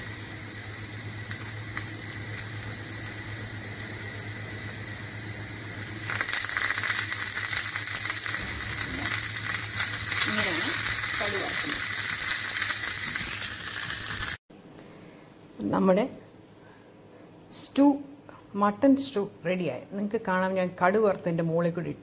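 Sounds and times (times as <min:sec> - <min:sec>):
low hum: 0:00.0 - 0:12.1
hot oil crackling and spitting: 0:00.0 - 0:14.4
oil sizzling in a pan: 0:00.0 - 0:14.4.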